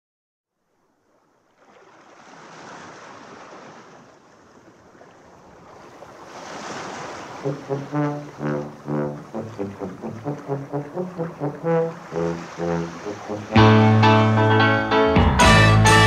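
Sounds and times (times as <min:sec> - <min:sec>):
sea surf washing in: 0:05.6 - 0:14.9
brass instruments short loud notes: 0:07.4 - 0:16.0.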